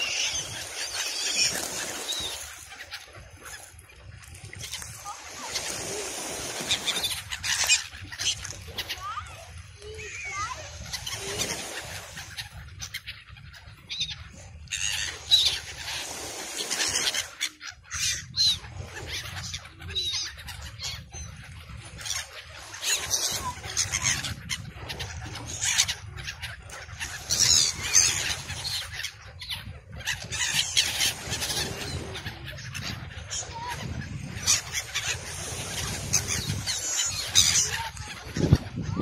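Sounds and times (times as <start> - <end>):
gulls squealing: 0.0 - 3.7, 4.6 - 13.0, 22.0 - 39.0.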